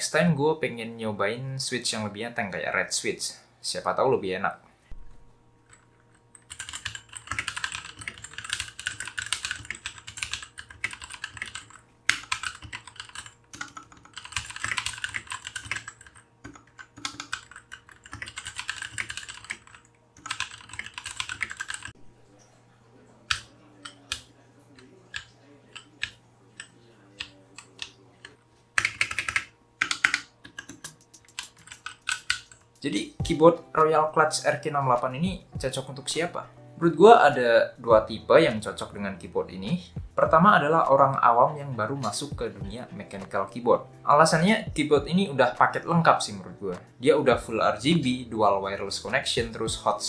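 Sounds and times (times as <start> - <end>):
mechanical keyboard typing: 5.7 - 22.0, 23.3 - 32.7.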